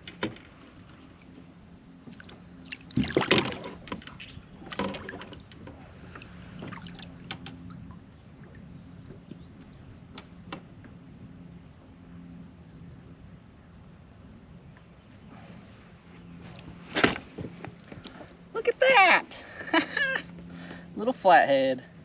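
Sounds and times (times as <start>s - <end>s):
light knocks against hull: 1.4s - 7.7s
fish splashing in water: 2.2s - 7.4s.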